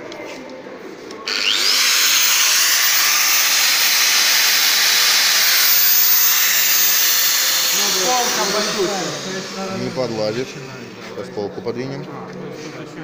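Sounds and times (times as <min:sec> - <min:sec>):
milling machine motor whirring: 0:01.3 - 0:11.1.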